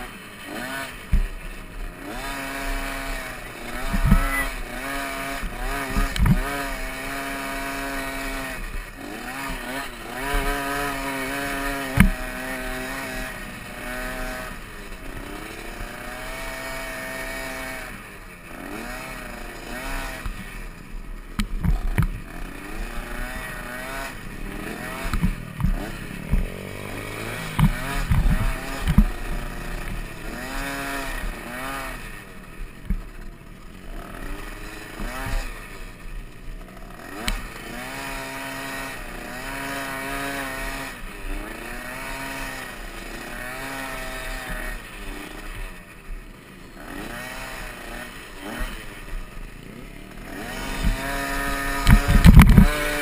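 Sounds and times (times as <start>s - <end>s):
dirt bike engine revving: 0.0s - 53.0s
low thumps on bumps: 24.8s - 29.2s, 50.8s - 52.8s.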